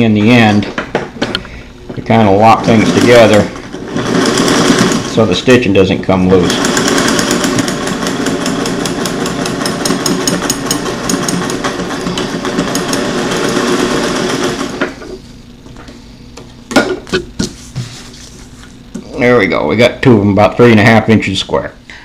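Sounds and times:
sewing machine stitching: 2.4 - 5.3, 6.4 - 15.2.

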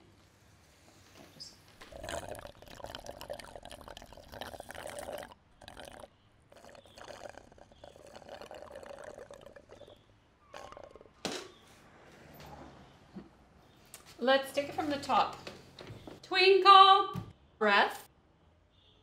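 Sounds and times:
liquid being poured: 1.8 - 11.2.

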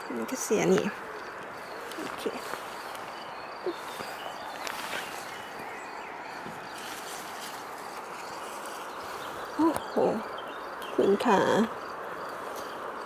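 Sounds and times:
steady outdoor hiss: 0.0 - 13.0
faint bird chirps: 1.6 - 11.9.

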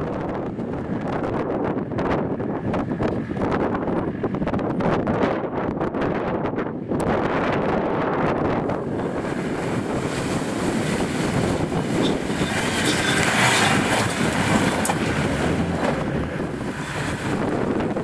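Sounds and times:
off-road vehicle engine running: 0.0 - 6.1, 8.4 - 18.0
wind buffeting microphone: 0.0 - 18.0
water splashing: 8.8 - 18.0.

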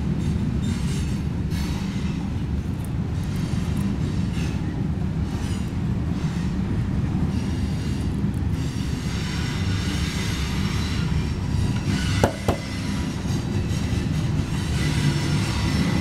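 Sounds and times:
sharp knocks: 12.2 - 12.8.

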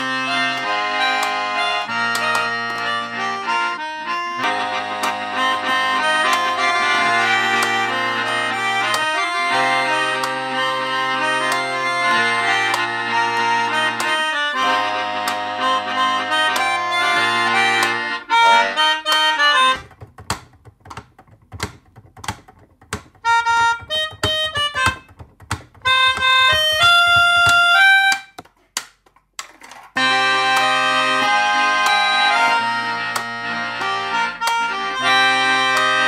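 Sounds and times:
melodicas playing chords: 0.0 - 19.9, 23.2 - 25.1, 25.8 - 28.4, 30.0 - 36.0
clicking beat: 0.0 - 36.0
low bass line: 4.4 - 14.0.

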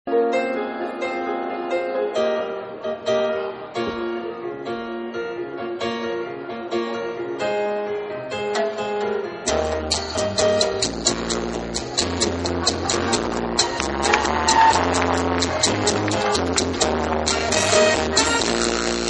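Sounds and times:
dance beat with deep bass: 9.5 - 19.0.

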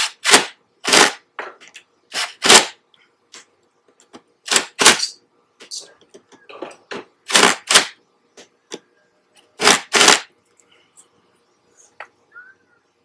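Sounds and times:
cordless impact driver bursts: 9.6 - 10.3.

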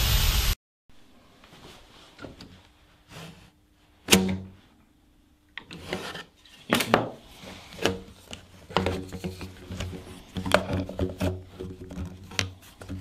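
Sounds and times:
plastic hose scraping and knocking: 5.6 - 13.0.

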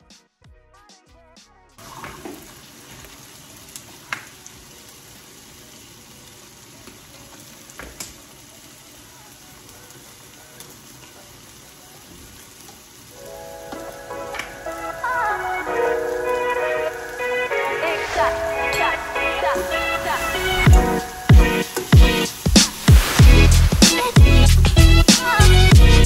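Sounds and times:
background music: 0.0 - 1.9, 13.2 - 26.0
vegetables sizzling in a pan: 1.8 - 26.0.

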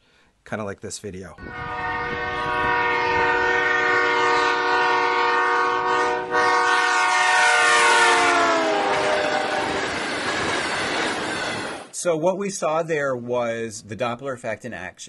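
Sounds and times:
train horn: 1.4 - 10.1
rumble of passing train cars: 1.4 - 12.0.

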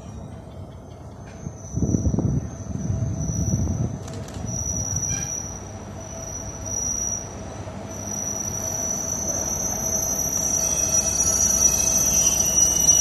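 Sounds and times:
rail car low rumble: 0.0 - 13.0
high-pitched squeal: 4.5 - 13.0.

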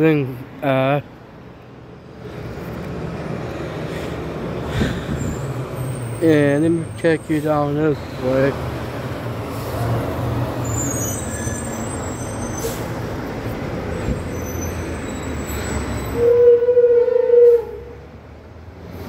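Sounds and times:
heavy truck passing: 0.0 - 19.0
truck horn blast: 16.2 - 18.0.

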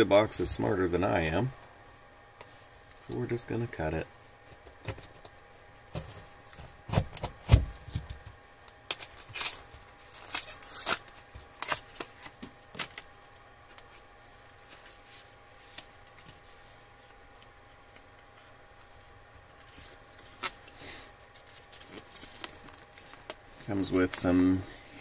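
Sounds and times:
cardboard and paper rustling: 18.4 - 24.6.

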